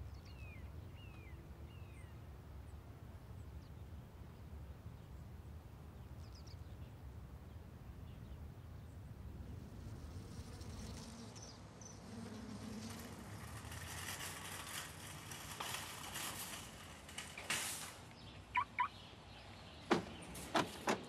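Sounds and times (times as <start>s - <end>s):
skateboard rolling on asphalt: 9.1s - 18.5s.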